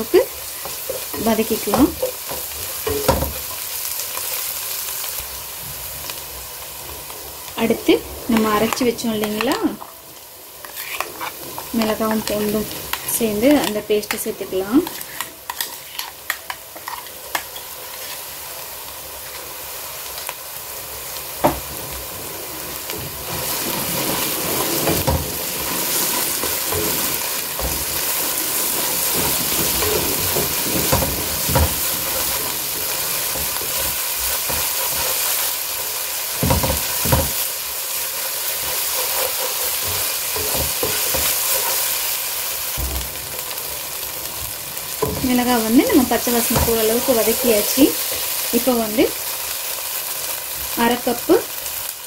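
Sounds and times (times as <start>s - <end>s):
paste sizzling in a pan: 0.0s - 52.0s
wooden spatula scraping a pan: 10.6s - 16.2s, 21.7s - 37.6s, 38.2s - 42.2s.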